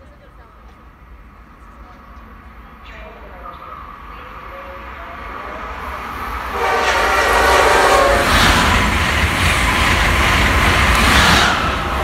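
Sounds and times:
train passing at speed: 0.0s - 12.0s
train horn: 6.5s - 8.7s.

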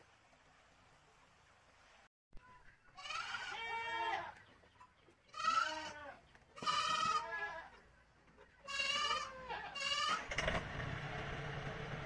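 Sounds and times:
goats bleating: 3.0s - 4.4s, 5.3s - 7.8s, 8.6s - 10.3s
tractor engine rumbling: 9.8s - 12.0s.

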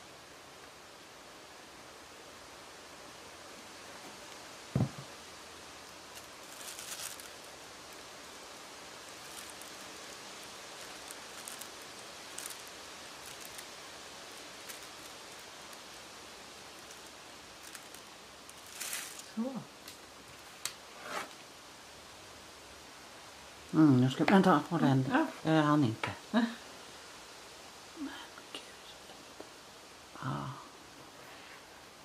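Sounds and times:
faint background hiss: 0.0s - 32.0s
dull knock: 4.7s - 5.1s
tissue paper crinkling: 5.9s - 8.1s, 9.0s - 19.4s.

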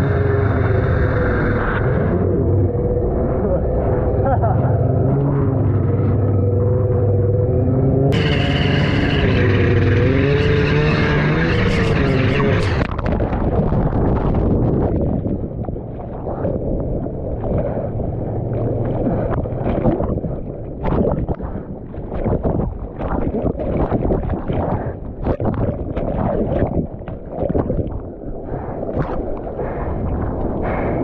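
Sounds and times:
muffled underwater surf rumble: 0.0s - 31.0s.

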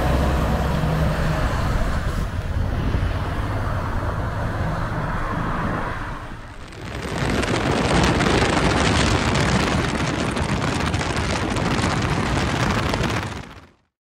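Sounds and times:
truck engine hum: 0.0s - 13.6s
tyre noise: 6.4s - 13.8s.

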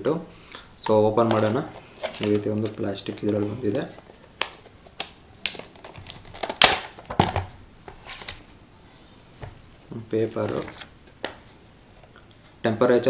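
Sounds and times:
plastic packaging clicking and crinkling: 0.8s - 8.4s.

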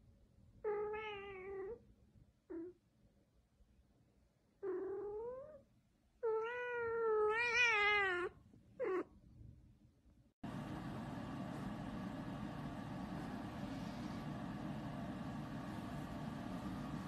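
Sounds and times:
cat meowing: 6.2s - 9.1s.

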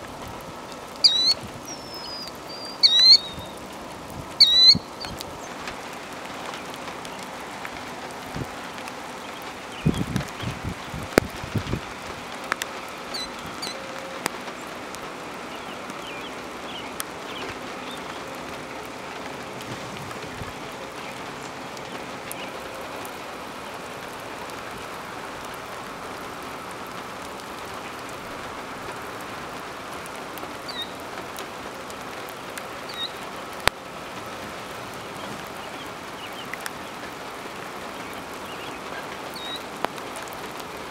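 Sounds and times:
birds chirping: 0.0s - 25.0s, 30.6s - 31.1s, 32.7s - 33.4s, 34.8s - 40.9s
light rain pattering on grass: 0.0s - 40.9s.

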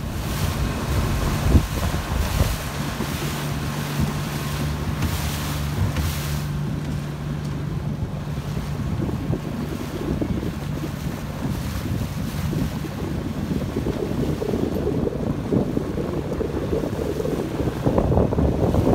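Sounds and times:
water and waves rushing: 0.0s - 18.9s
wind buffeting microphone: 0.0s - 18.9s.

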